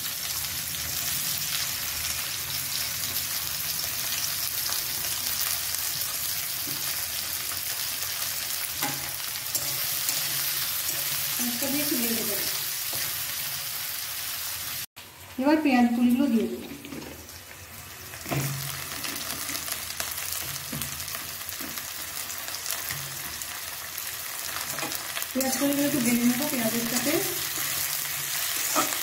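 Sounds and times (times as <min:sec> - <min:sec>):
onions sizzling in hot oil: 0:00.0 - 0:29.0
metal spatula scraping pan: 0:08.8 - 0:11.4, 0:26.9 - 0:29.0.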